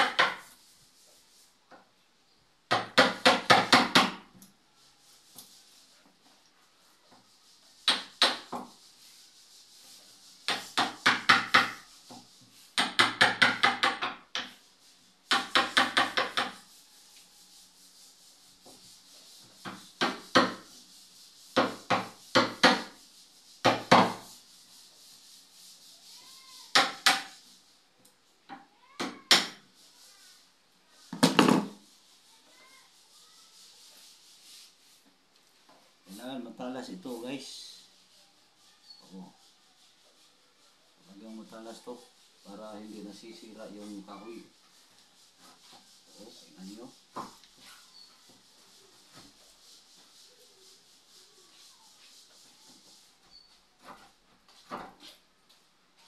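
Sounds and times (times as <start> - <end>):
hammer tapping wood chisel: 12.8 - 14.6, 15.3 - 16.6.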